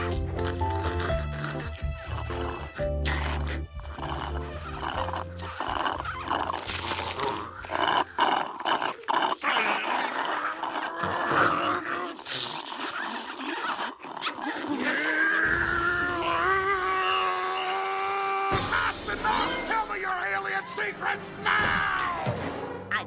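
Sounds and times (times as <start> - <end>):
slurping through a straw: 0.5 - 15.4.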